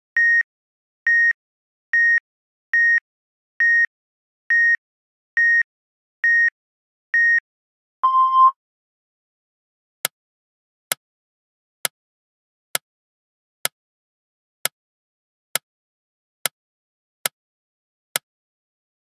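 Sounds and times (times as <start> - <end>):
long low beep: 8.0 - 8.6
short high electronic beeps: 8.0 - 8.6.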